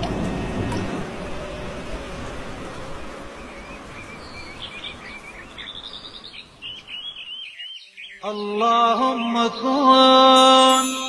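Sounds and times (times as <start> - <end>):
birds chirping: 0.0 - 10.8
voice chanting a recitation: 8.2 - 11.0.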